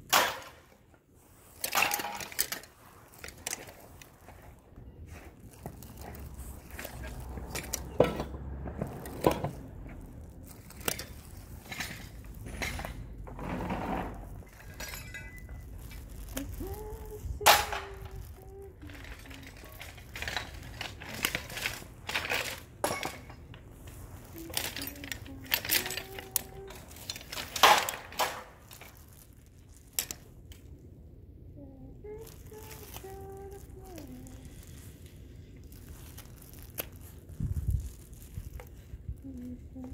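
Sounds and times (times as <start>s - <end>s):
hand tools clinking on metal pipes: 1.6s - 3.8s, 6.0s - 8.4s, 10.7s - 13.4s, 14.4s - 16.6s, 17.4s - 18.3s, 19.0s - 23.6s, 24.5s - 28.9s.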